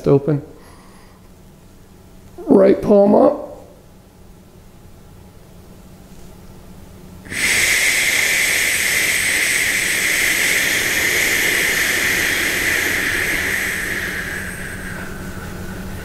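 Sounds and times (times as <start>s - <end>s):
person whispering shhh: 7.3s - 15.4s.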